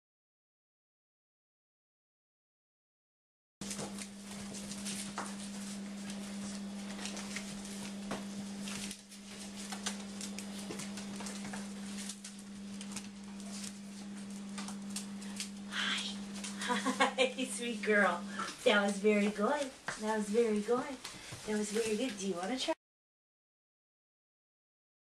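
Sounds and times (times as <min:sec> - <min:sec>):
steady hum: 0:03.6 - 0:22.8.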